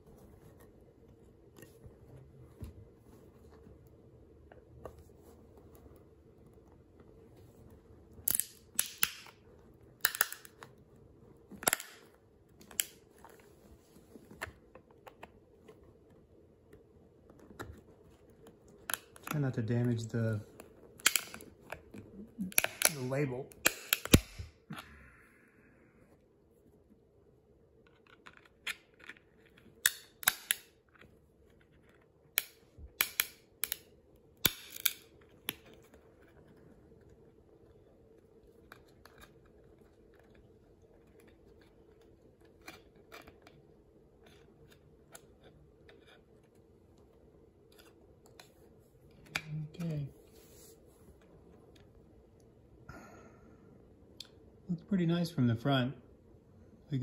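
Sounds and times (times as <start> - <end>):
plastic clicking and snapping: 20.6 - 24.8.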